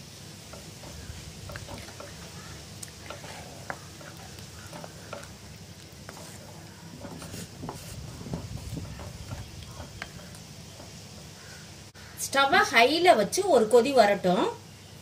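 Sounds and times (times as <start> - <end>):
steady low hum: 0.0 - 12.2
spatula tapping and scraping pot: 0.5 - 11.7.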